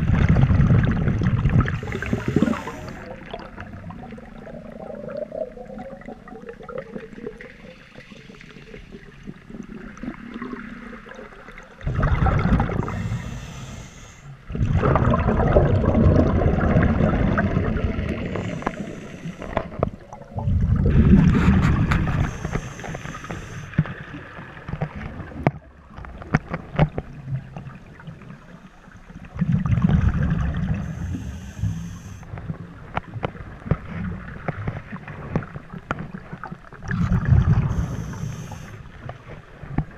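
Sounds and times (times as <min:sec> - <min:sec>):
bubbles gurgling and fizzing: 0:00.0 - 0:13.4, 0:14.5 - 0:22.5, 0:29.2 - 0:31.3, 0:33.8 - 0:38.1
underwater noise: 0:00.0 - 0:39.9
diver breathing through regulator: 0:01.7 - 0:03.2, 0:12.7 - 0:14.4, 0:18.1 - 0:19.8, 0:21.2 - 0:23.8, 0:30.7 - 0:32.3, 0:37.6 - 0:39.0.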